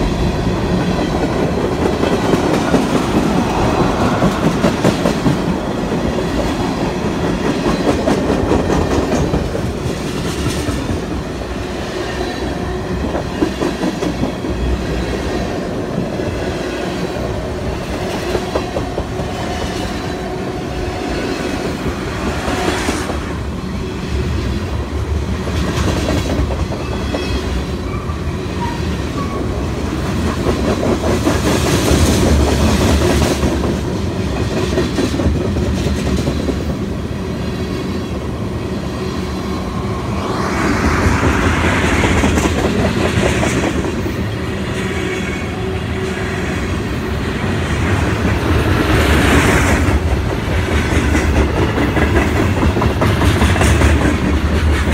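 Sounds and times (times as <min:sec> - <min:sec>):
freight train rumbling: 0:00.0 - 0:54.9
wheels clacking over rail joints: 0:47.8 - 0:54.9.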